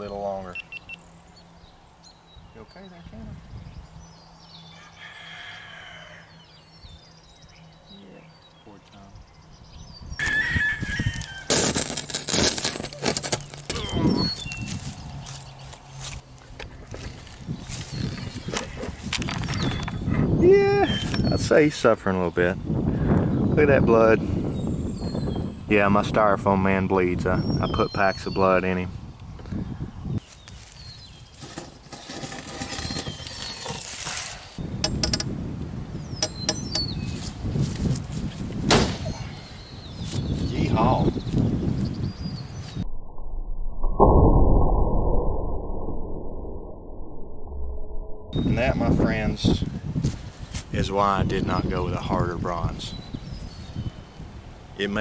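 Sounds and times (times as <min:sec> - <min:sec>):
birds chirping: 0:00.0 - 0:11.5, 0:13.3 - 0:31.8, 0:32.5 - 0:33.9, 0:34.6 - 0:37.5, 0:39.0 - 0:42.9, 0:47.8 - 0:49.7, 0:50.8 - 0:55.0
blade crackling and grinding through glass: 0:11.5 - 0:13.7.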